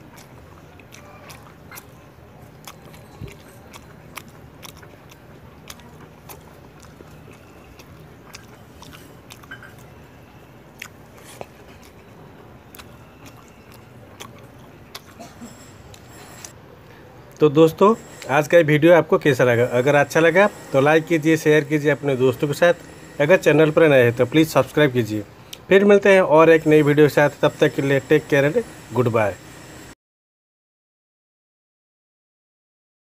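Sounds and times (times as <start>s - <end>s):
wet mouth clicks and smacks: 0.0s - 10.0s, 10.7s - 15.2s
person chewing food: 0.0s - 16.5s.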